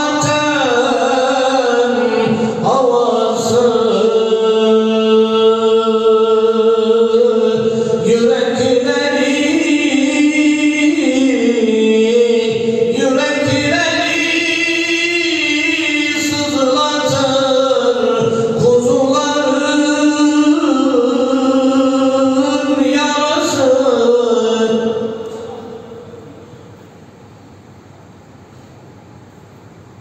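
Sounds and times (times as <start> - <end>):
man singing unaccompanied: 0.0 - 26.2
singer breathing: 2.4 - 2.6.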